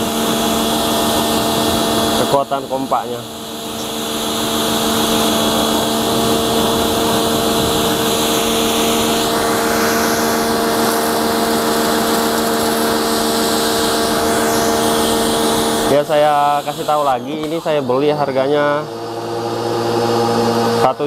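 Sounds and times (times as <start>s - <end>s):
pressure washer motor hum: 0.0s - 21.0s
water jet spraying hiss: 3.8s - 17.9s.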